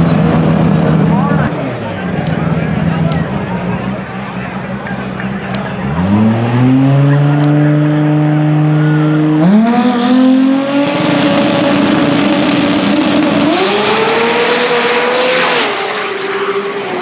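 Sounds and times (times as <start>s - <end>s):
car engine revving and accelerating: 4.6s - 17.0s.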